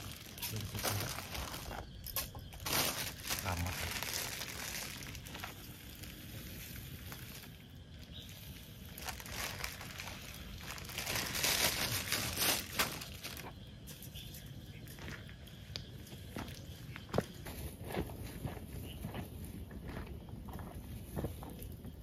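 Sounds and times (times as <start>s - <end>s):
packaging crinkling: 0.0s - 1.8s, 2.5s - 7.6s, 8.8s - 13.5s.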